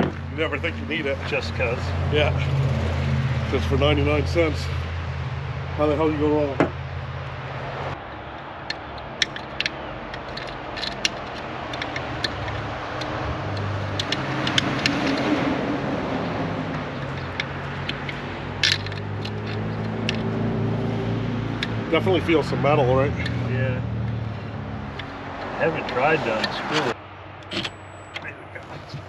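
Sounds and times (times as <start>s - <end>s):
metal pick clicking and scraping: 8.3s - 15.4s, 16.7s - 20.3s.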